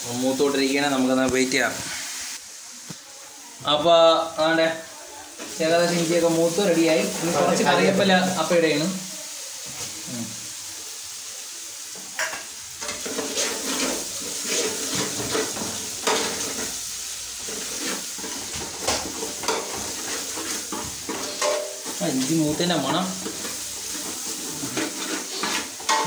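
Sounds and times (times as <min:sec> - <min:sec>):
ginger sizzling in hot oil: 0:00.0 - 0:26.0
spoon scraping and clinking pan: 0:12.2 - 0:16.7, 0:17.5 - 0:22.0, 0:22.8 - 0:26.0.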